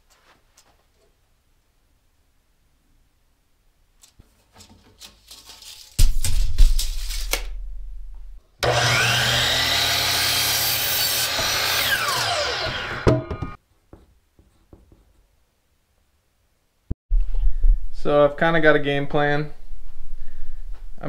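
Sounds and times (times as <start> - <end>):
miter saw motor whine: 8.6 - 13.5
saw blade cutting wood: 8.6 - 13.6.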